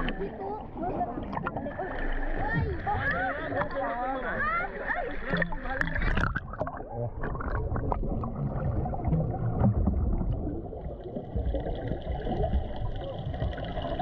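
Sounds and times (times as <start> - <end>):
muffled underwater water rumble: 0.0 - 14.0
air bubble clicks: 5.3 - 14.0.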